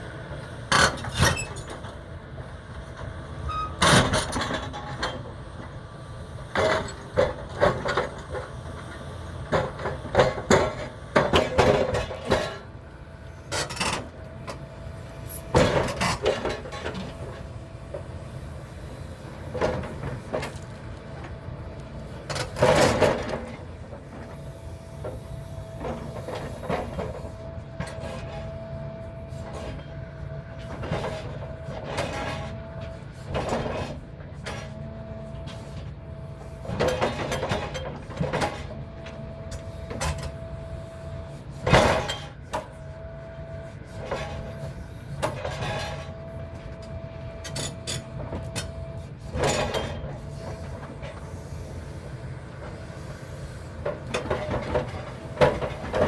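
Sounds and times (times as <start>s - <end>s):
diesel engine running: 0.0s - 56.0s
hydraulic whine: 3.4s - 5.2s.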